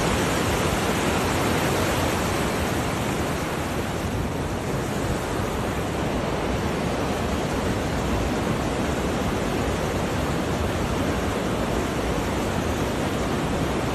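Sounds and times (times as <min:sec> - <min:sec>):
water rushing over rocks: 0:00.0 - 0:13.9.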